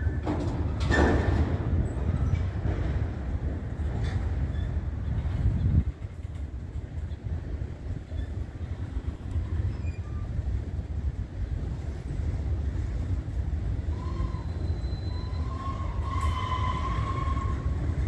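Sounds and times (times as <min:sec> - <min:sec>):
faint train wheel squeal: 0:00.0 - 0:02.6, 0:03.9 - 0:06.3, 0:07.0 - 0:10.8, 0:13.8 - 0:18.0
freight train rumbling: 0:00.0 - 0:18.0.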